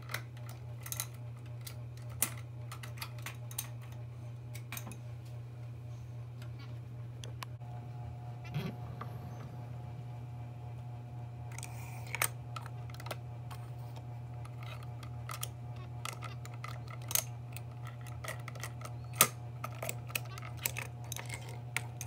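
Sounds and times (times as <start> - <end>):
plastic toys clicking and tapping: 0.0 - 4.0, 11.5 - 13.6, 14.4 - 22.0
steady low hum: 0.0 - 22.0.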